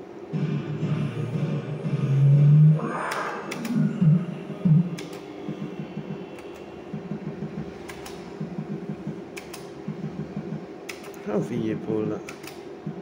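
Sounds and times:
low electronic pulsing: 0.0 - 12.2
sharp click: 9.4 - 9.7, 10.9 - 11.2, 12.2 - 12.6.

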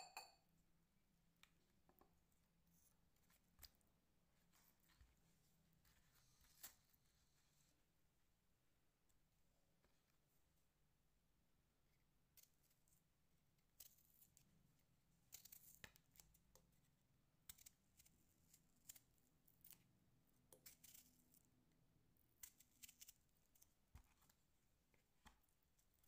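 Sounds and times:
onion skin crackling and tearing: 17.5 - 19.9, 22.4 - 23.8.

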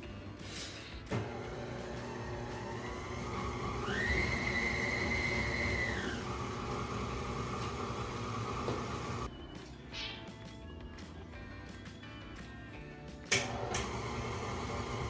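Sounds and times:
stand mixer motor whine: 1.1 - 9.3, 13.4 - 15.0.

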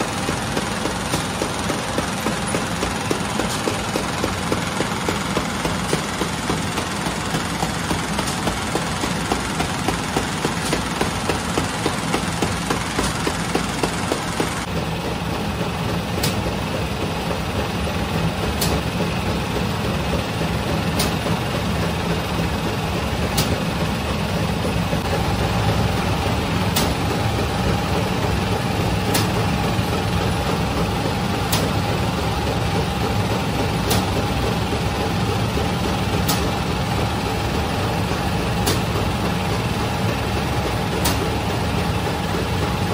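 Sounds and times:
oven machinery humming: 0.0 - 42.9
sharp mechanical click: 29.1 - 29.4, 33.8 - 34.2, 41.0 - 41.3.

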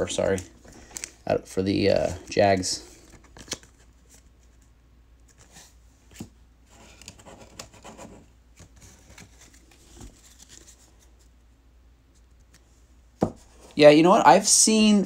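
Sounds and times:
trading cards rustling: 0.0 - 11.3.

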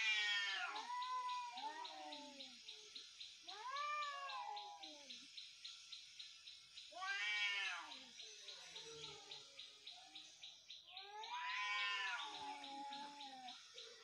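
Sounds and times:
cats yowling: 0.0 - 2.6, 3.4 - 5.2, 7.0 - 9.4, 10.9 - 13.7.

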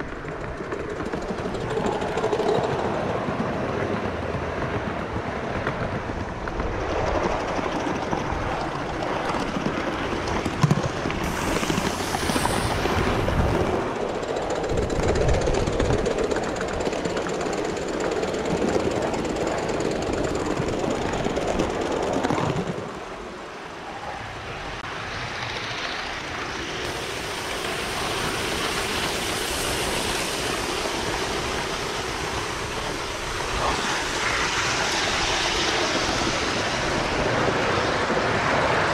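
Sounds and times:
model train wheels clattering on rails: 0.0 - 4.0, 5.6 - 22.8.

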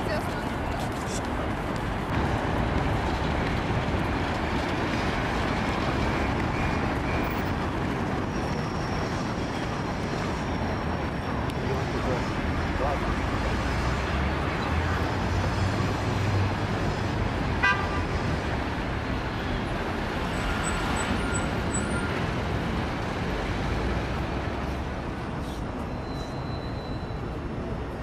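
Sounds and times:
road traffic rumble: 0.0 - 28.0
car horn toot: 17.6 - 18.0.

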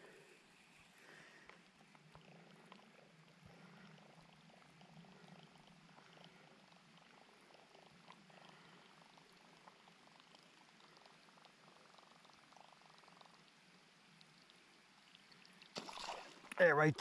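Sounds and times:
fishing reel whirring and ticking: 0.0 - 15.6.

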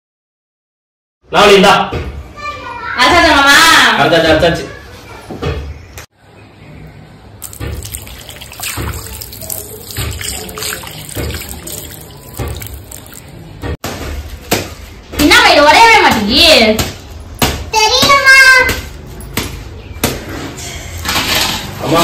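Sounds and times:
stone roller wet scraping: 7.4 - 13.4.

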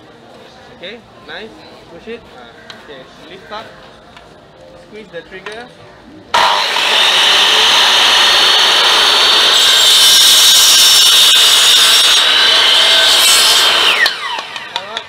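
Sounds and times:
miter saw cutting bamboo: 6.4 - 15.0.

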